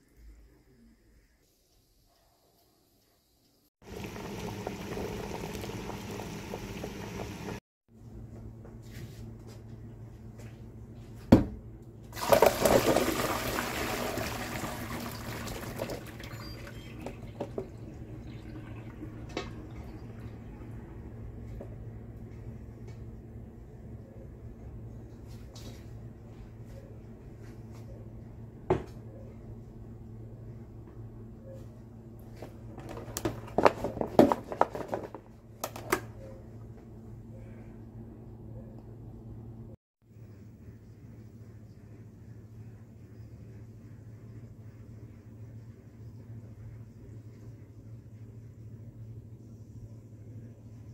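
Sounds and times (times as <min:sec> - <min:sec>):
water splashing into colander: 0:12.2 - 0:20.5
plastic container knocking in sink: 0:32.8 - 0:35.8.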